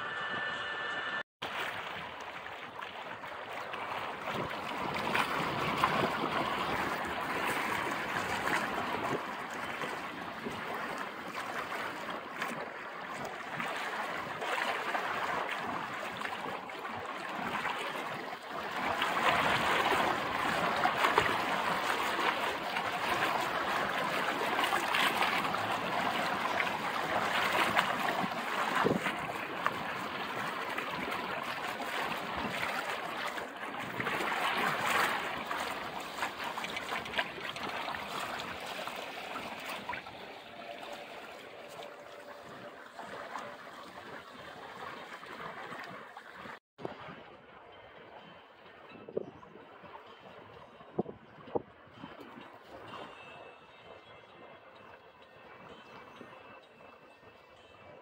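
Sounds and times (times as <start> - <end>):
water splashing along boat hull: 1.4 - 58.0.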